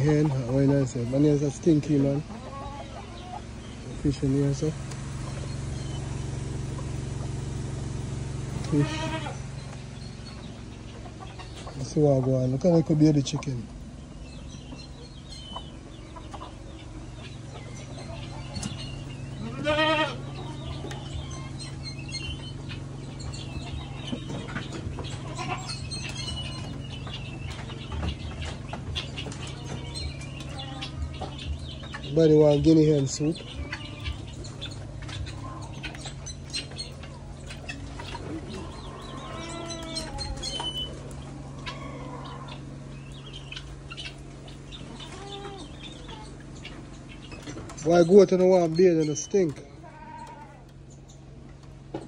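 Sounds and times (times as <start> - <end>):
poultry clicks and chirps: 0.0 - 19.4, 20.2 - 52.0
bird pitched call: 0.0 - 51.2
steady low hum: 0.0 - 52.0
goat bleating: 8.6 - 9.4, 19.3 - 21.4, 25.1 - 26.7, 29.4 - 31.1, 33.4 - 34.3, 38.5 - 40.9, 44.9 - 46.3, 49.7 - 50.7.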